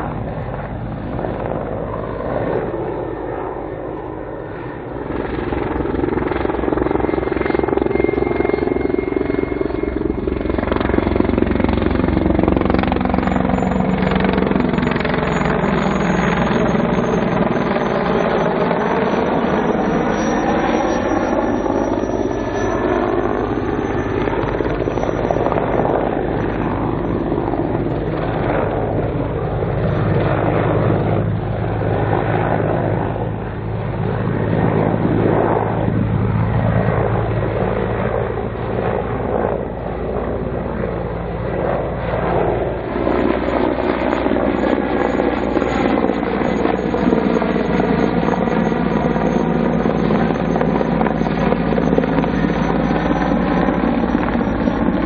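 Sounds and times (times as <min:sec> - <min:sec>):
helicopter flying by: 0:00.0 - 0:55.0.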